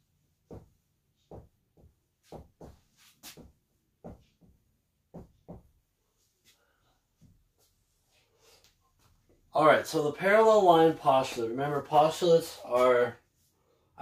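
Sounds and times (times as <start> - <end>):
marker writing on a whiteboard: 0.4 - 4.6.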